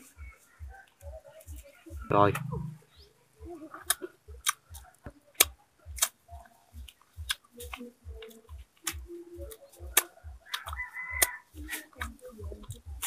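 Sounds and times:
soft low thuds: 0:02.0 - 0:04.4.

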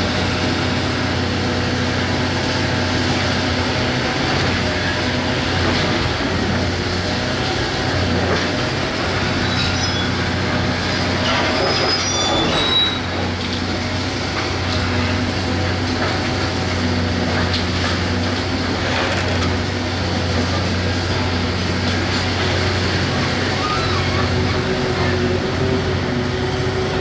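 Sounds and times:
excavator diesel engine running: 0:00.0 - 0:27.0
high metallic squeals: 0:09.4 - 0:10.3, 0:11.2 - 0:13.2, 0:23.4 - 0:25.9.

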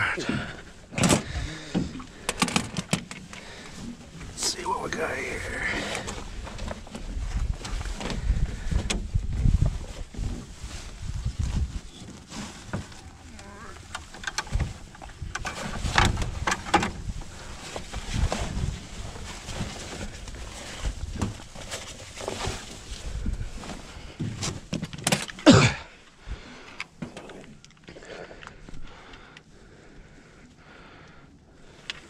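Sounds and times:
rustling scraping and knocks: 0:05.9 - 0:25.4
wind rumble on microphone: 0:06.0 - 0:12.1, 0:14.4 - 0:21.6, 0:22.8 - 0:24.2.

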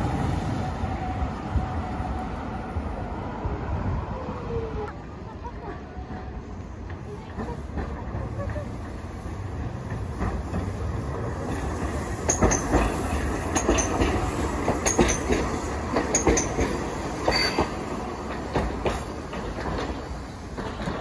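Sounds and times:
tram running gear rumble: 0:00.0 - 0:21.0
wheels clacking over rail joints: 0:05.9 - 0:21.0.

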